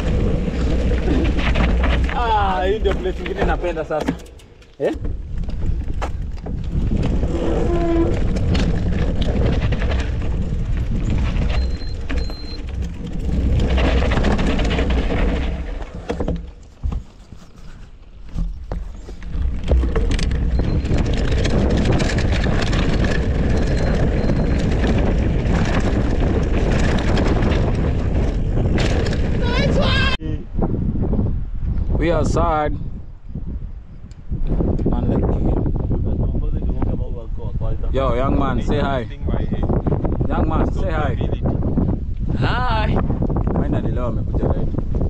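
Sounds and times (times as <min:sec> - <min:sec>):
bike rattling over ground: 0:00.0 - 0:30.1
wind rumbling on microphone: 0:00.0 - 0:45.0.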